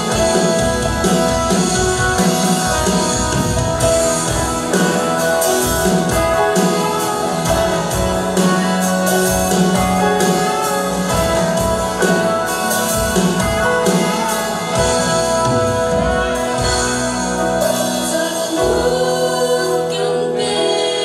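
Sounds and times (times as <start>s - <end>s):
drums: 0.0s - 21.0s
electric guitar: 0.0s - 21.0s
electric keyboard: 0.0s - 21.0s
people singing into microphones: 17.4s - 21.0s.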